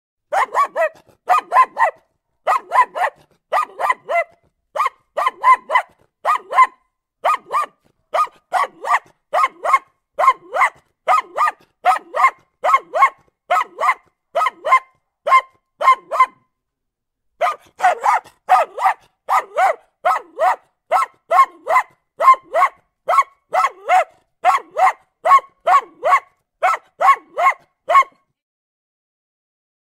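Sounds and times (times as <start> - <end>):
dog barking: 0.3 - 16.5, 17.4 - 28.3.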